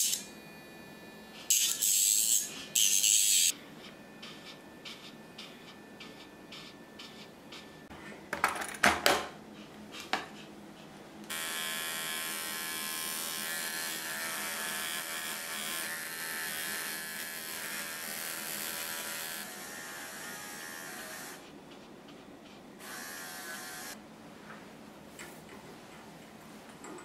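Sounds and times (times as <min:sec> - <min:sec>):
electric clipper buzzing: 0:00.0 - 0:00.3, 0:01.5 - 0:03.6, 0:11.3 - 0:21.4, 0:22.8 - 0:24.0.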